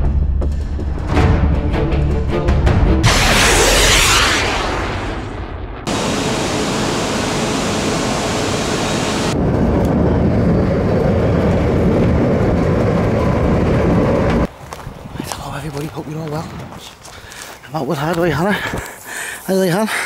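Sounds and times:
station platform rumble: 0:03.0 - 0:14.5
rumble inside moving train: 0:09.3 - 0:14.5.

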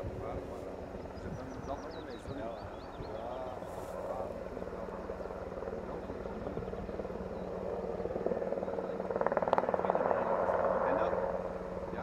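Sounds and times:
helicopter rotor chopping: 0:00.0 - 0:12.0
steady low hum: 0:00.0 - 0:12.0.

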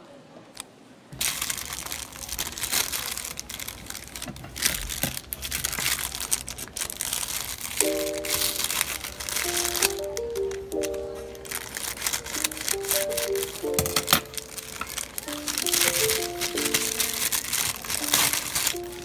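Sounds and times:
plastic bag crinkling: 0:01.2 - 0:19.0
music with held notes: 0:07.8 - 0:19.0.

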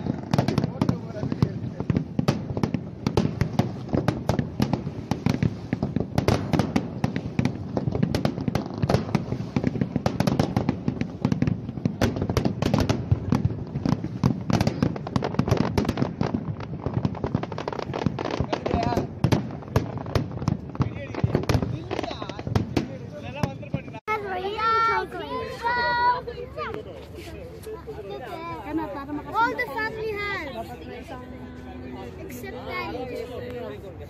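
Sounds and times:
fireworks bangs: 0:00.0 - 0:26.8.

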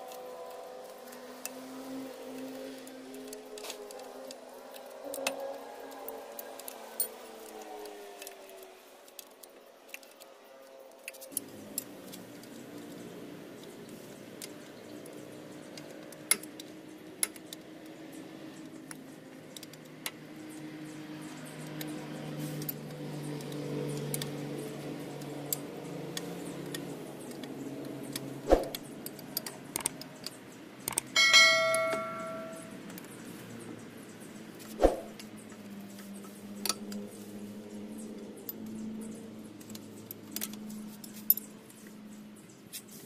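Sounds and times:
steel tool striking metal ringing: 0:31.2 - 0:32.7.

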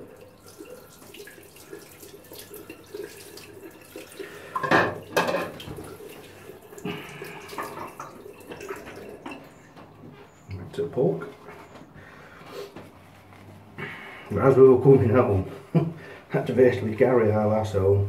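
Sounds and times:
water splashing in a sink: 0:00.0 - 0:11.5
faint water trickle: 0:00.0 - 0:18.0.

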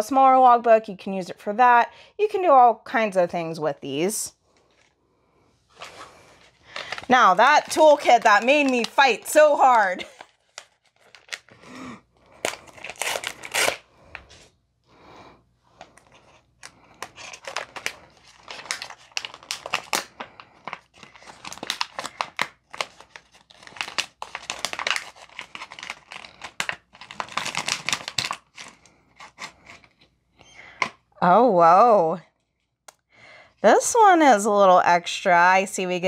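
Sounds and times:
paper tearing and crinkling: 0:05.7 - 0:14.3, 0:17.0 - 0:29.9.

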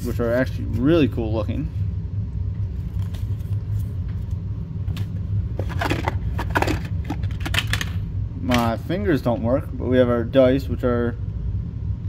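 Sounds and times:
room heater humming: 0:00.0 - 0:12.0
rummaging in cardboard box: 0:05.6 - 0:07.5.

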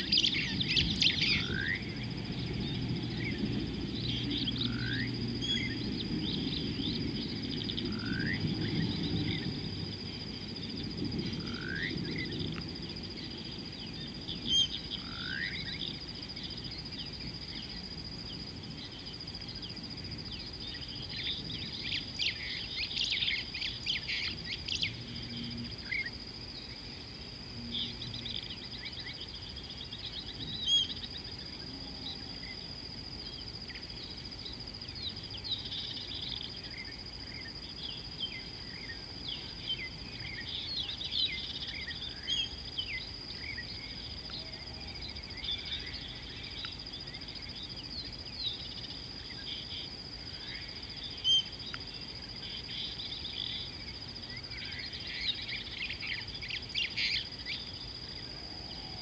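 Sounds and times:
high-pitched insect drone: 0:00.0 - 0:59.0
small birds chirping and trilling: 0:00.0 - 0:59.0.

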